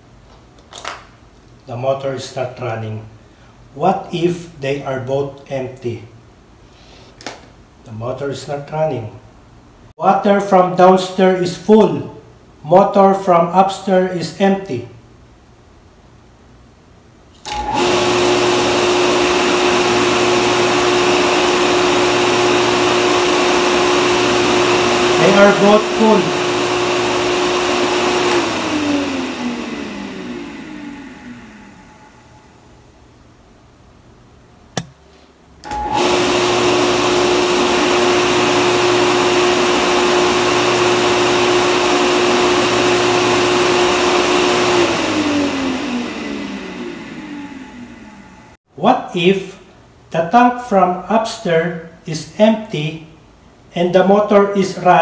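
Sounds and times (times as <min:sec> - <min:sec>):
water pump motor humming: 0:17.5 - 0:32.2
float switch click: 0:34.8 - 0:35.0.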